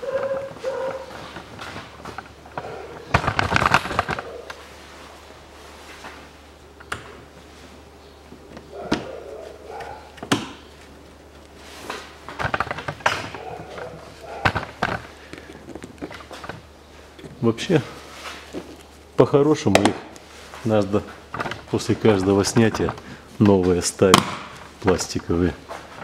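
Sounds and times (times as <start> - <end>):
plastic shield rattling: 0.7 - 4.3, 12.2 - 15.1.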